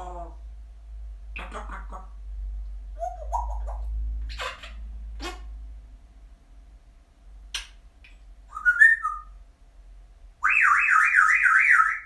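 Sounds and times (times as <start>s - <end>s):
parrot whistling: 8.5s - 9.4s, 10.4s - 12.0s.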